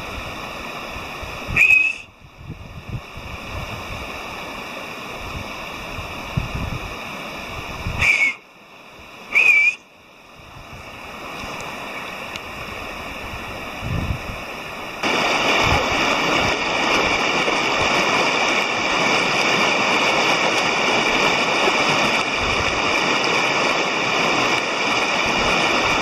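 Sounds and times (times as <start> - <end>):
river rushing over stones: 0.0 - 26.0
short high whistles: 1.5 - 2.1, 8.0 - 8.4, 9.3 - 9.9.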